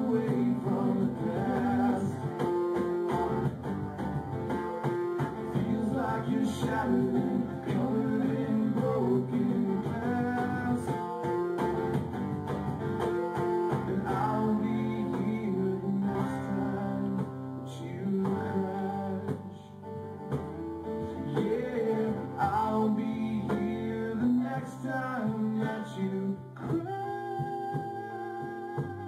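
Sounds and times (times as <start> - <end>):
man singing: 0.0 - 3.5, 4.4 - 11.8, 13.0 - 19.8, 21.0 - 29.0
rock band playing: 0.0 - 17.5, 20.1 - 23.9
acoustic guitar strummed: 0.0 - 29.0.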